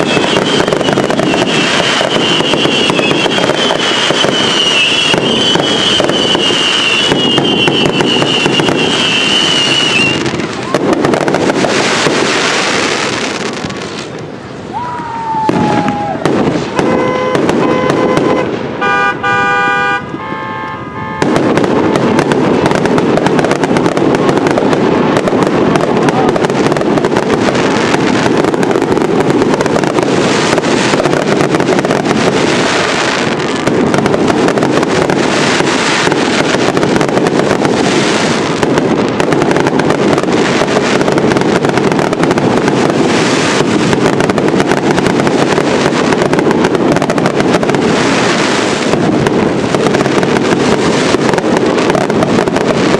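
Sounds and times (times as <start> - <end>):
falling firework whistle: 0.0 - 23.9
fireworks bangs and crackle: 0.0 - 52.9
car horns honking: 16.8 - 21.4.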